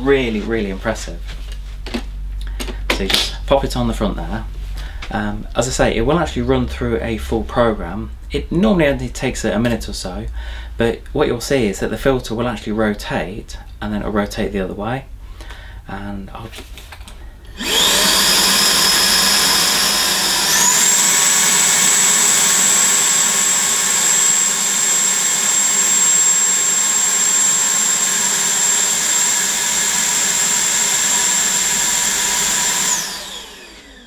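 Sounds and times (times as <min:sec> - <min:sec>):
vacuum motor whine: 0:17.5 - 0:34.0.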